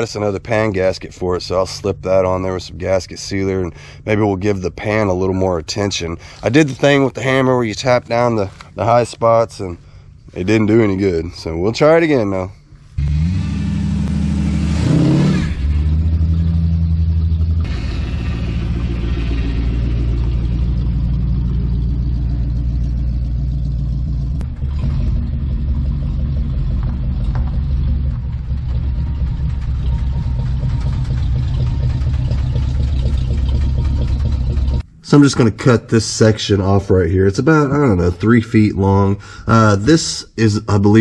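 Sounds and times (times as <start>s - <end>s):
car engine running and revving: 12.8s - 34.9s.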